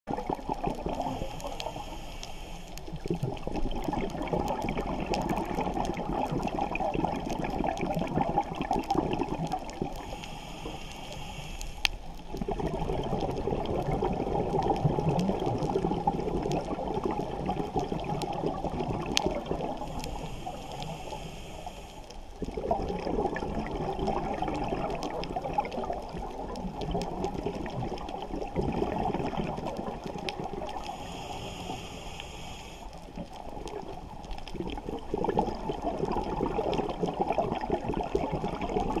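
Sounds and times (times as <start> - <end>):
exhaled bubbles rumbling underwater: 0.1 - 39.0
hissing inhale through regulator: 0.7 - 3.1, 9.8 - 12.4, 19.6 - 22.5, 30.6 - 33.4.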